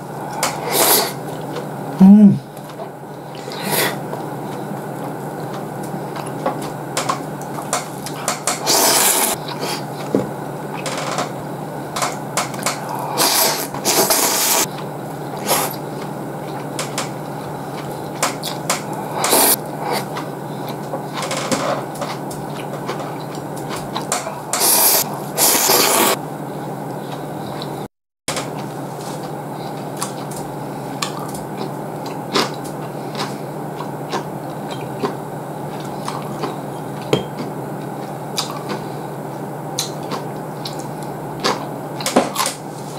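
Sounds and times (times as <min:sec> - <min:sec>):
steady low hum: 0:00.0 - 0:42.9
noodles being slurped: 0:00.5 - 0:01.6, 0:07.6 - 0:10.0, 0:12.8 - 0:14.7, 0:17.6 - 0:20.8, 0:22.1 - 0:26.2.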